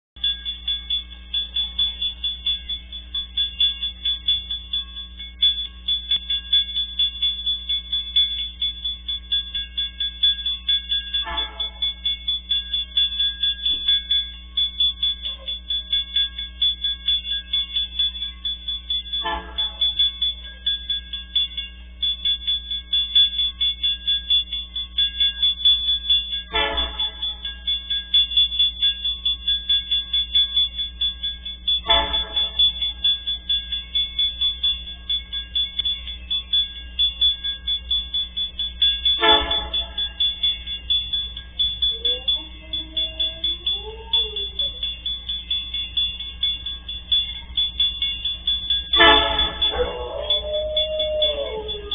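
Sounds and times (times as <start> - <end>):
level crossing bell ringing: 0.2 - 51.9
locomotive horn blasts: 11.2 - 12.0, 19.2 - 20.0, 26.4 - 27.6, 31.8 - 33.0, 39.1 - 40.3, 48.8 - 50.5.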